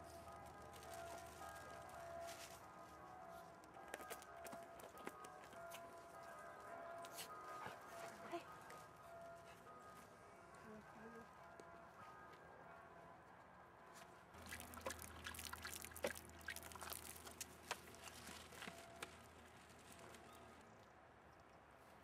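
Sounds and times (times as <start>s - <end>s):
small splashes and drips: 14.4s - 18.0s
water pouring from plastic bottle: 14.4s - 18.7s.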